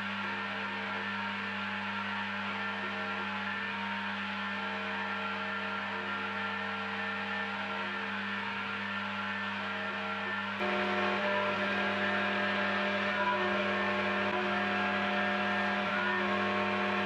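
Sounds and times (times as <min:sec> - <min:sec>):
milling machine cutting metal: 0:10.6 - 0:17.0.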